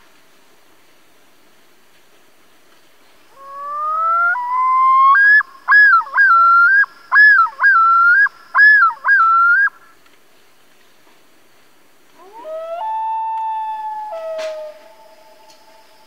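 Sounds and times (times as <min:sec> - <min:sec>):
loon calling: 0:03.3 - 0:10.0, 0:12.2 - 0:16.0.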